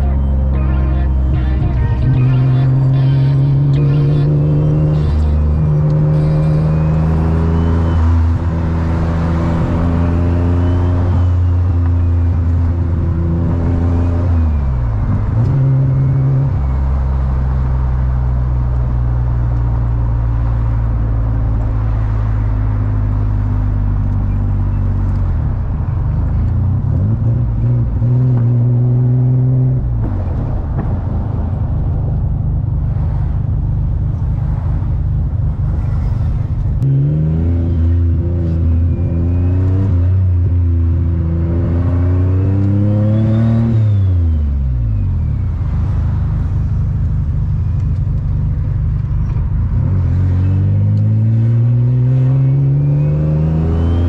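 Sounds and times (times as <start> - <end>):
turbo whine: 0.0 - 8.7
car engine revving: 0.0 - 54.0.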